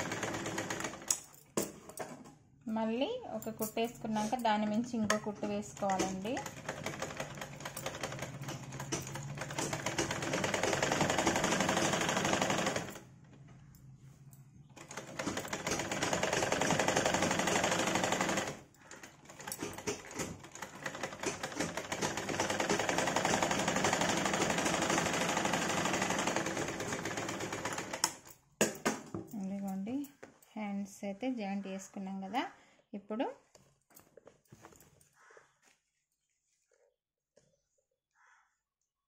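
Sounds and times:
sewing machine stitching: 0.0 - 1.2, 5.3 - 13.0, 14.8 - 28.2.

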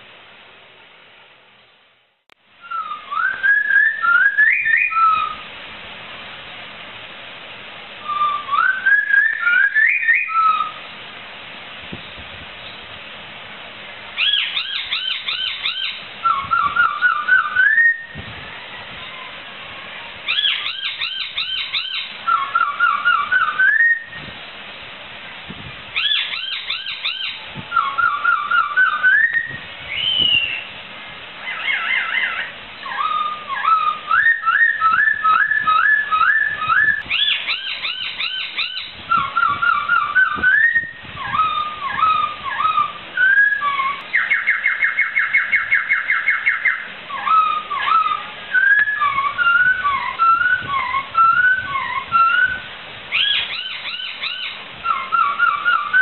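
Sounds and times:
bird singing whistled phrases: 2.6 - 5.4, 8.0 - 10.8, 14.2 - 19.3, 20.3 - 24.2, 26.0 - 30.7, 31.5 - 56.0
bird trilling: 2.6 - 5.4, 8.0 - 10.8, 14.2 - 24.2, 25.9 - 30.8, 31.4 - 56.0.

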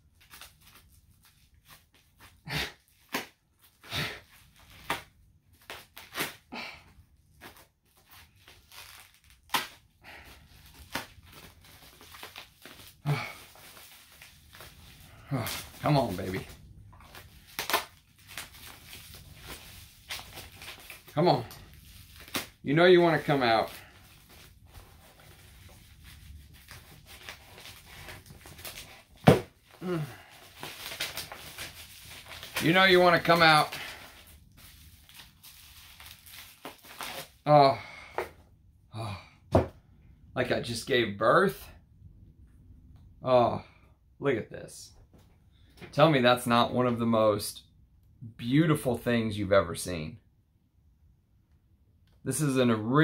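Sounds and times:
packaging rustling and scraping: 7.3 - 37.4
paper tearing and crumpling: 7.4 - 37.5
person grunting with effort: 13.0 - 13.5, 15.2 - 15.8, 29.8 - 30.3, 38.9 - 39.5.

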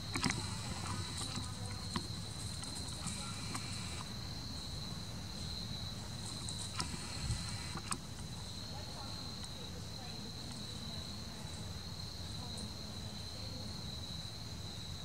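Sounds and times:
high-pitched insect chorus: 0.0 - 15.0
faint clicks: 0.1 - 4.1, 6.4 - 8.3.

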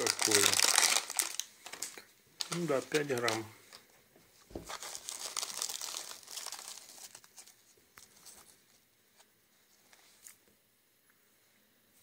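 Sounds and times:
plastic tray and seaweed crinkling: 0.0 - 3.9, 4.5 - 8.5.

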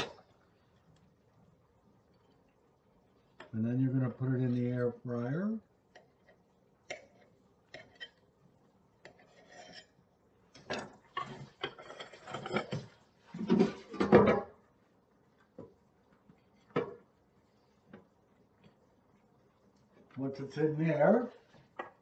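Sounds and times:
dishes clattering and scraping: 6.0 - 8.2, 9.0 - 14.6.

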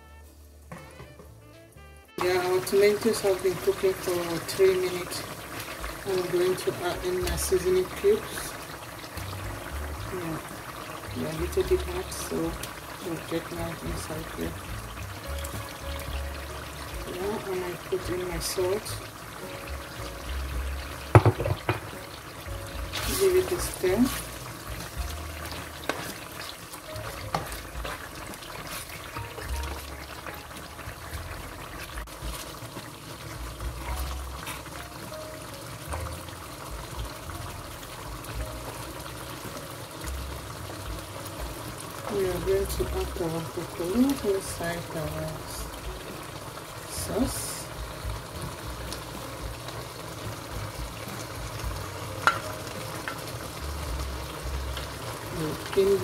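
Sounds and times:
sauce sizzling in a pan: 0.0 - 56.0
vegetables spooned into a pan: 20.3 - 35.2, 47.2 - 56.0
spoon clicking against pan: 52.2 - 52.5
spoon tapping: 52.2 - 53.2.

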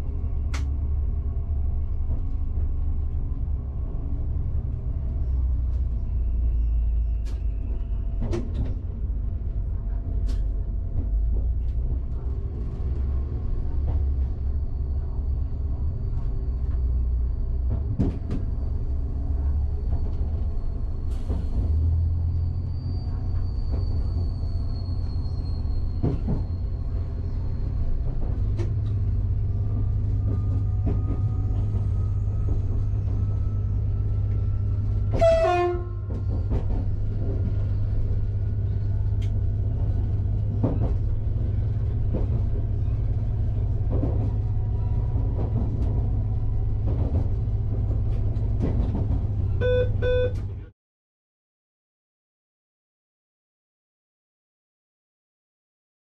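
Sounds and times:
train traction rumble: 0.0 - 50.7
train horn toot: 35.1 - 36.1.

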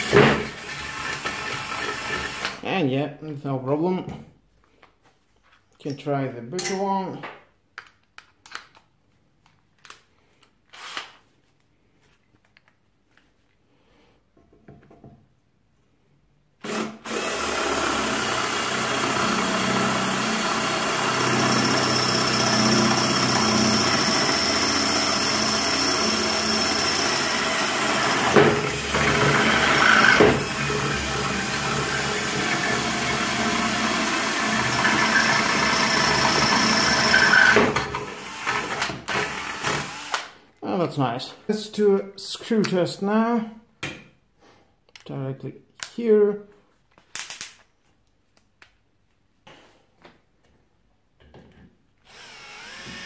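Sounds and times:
cordless drill drilling into brick: 0.0 - 2.6, 16.6 - 40.3, 52.1 - 53.0.

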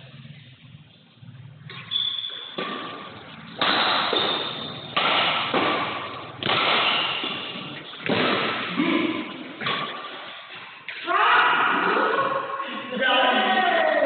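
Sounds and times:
rackets hitting shuttlecock: 1.7 - 10.3.

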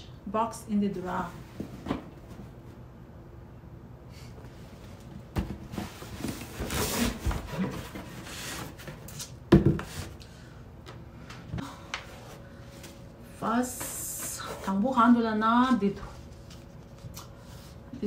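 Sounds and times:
cardboard scraping and rubbing: 5.7 - 10.1.

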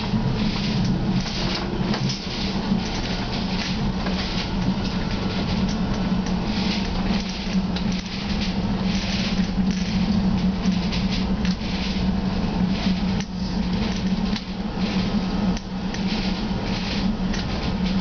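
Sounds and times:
rattling wheel and rail noise: 0.0 - 18.0
tram interior low hum: 0.0 - 18.0.

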